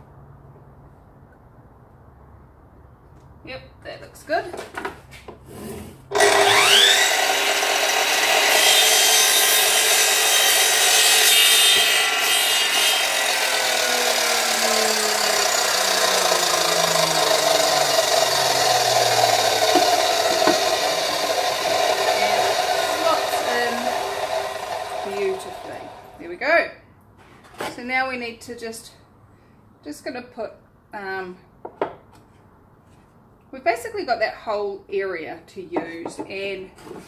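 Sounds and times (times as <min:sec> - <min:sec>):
mitre saw cutting wood: 0:06.1 - 0:26.2.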